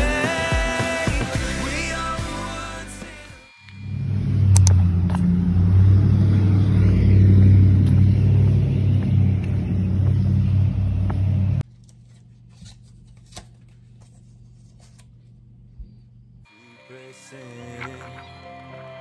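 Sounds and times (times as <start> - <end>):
low mechanical rumble with hum: 3.7 - 11.7.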